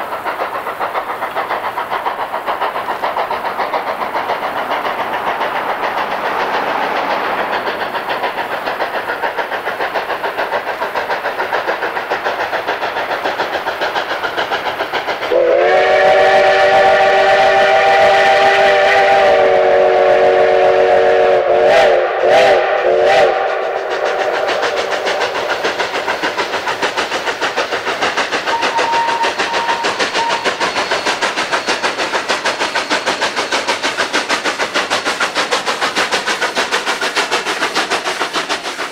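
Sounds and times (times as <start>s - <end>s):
steam locomotive chuffing: 0.0s - 38.9s
steam whistle blowing: 15.3s - 24.0s, 28.5s - 30.9s.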